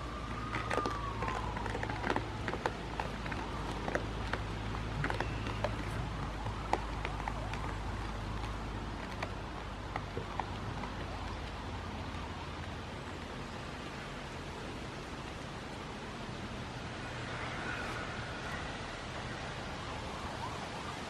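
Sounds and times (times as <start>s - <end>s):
goat hooves clicking on rocks: 0.0s - 13.4s
low outdoor rumble: 0.0s - 21.0s.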